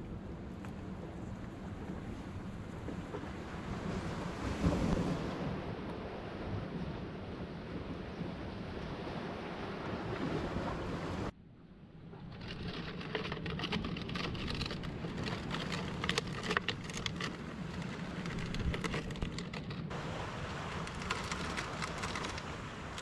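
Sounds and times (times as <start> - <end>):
plastic clicking and crackling: 12.4 - 19.9, 20.9 - 23.0
wind hiss: 14.0 - 23.0.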